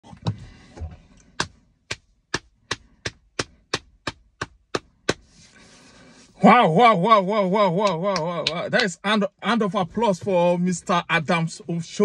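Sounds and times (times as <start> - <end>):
person clapping hands slowly: 1.4 - 5.2, 7.8 - 8.9.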